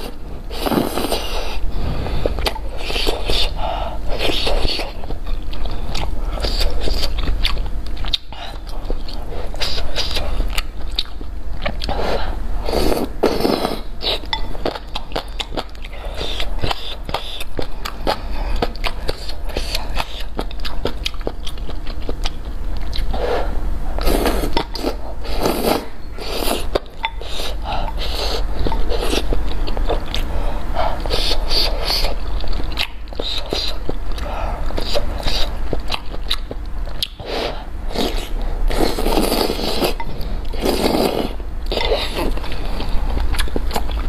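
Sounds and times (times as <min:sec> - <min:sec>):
noodles slurping: 0:00.0 - 0:02.0, 0:37.4 - 0:42.9.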